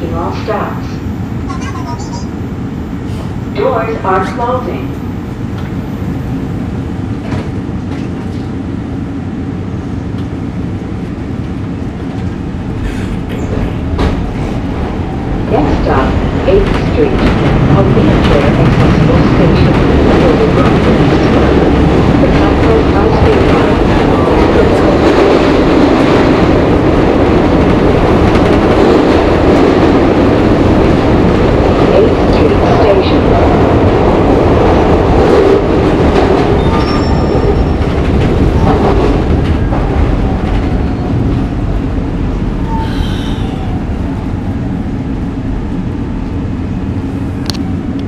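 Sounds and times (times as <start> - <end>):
subway car wheels rumbling: 0.0 - 48.0.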